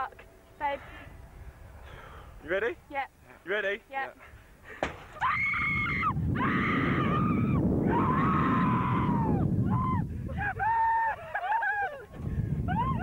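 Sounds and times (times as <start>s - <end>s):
wind noise rushing: 5.2s - 11.2s, 12.0s - 13.0s
riders screaming: 5.2s - 12.0s.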